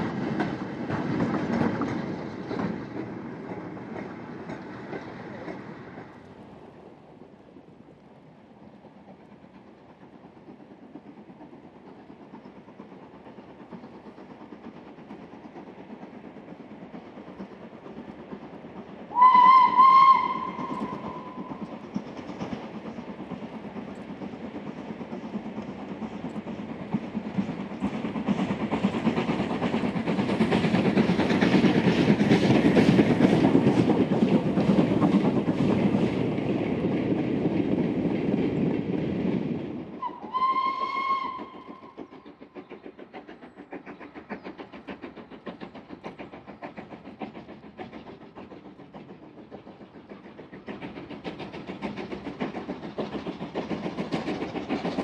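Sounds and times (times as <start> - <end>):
steam locomotive passing: 0.0 - 55.0
steam whistle blast: 19.1 - 21.4, 40.0 - 41.9.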